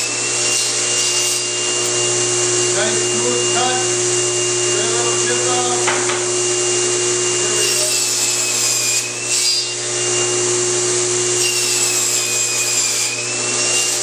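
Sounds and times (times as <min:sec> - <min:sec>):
table saw ripping wood: 0:00.0 - 0:02.1, 0:07.3 - 0:14.0.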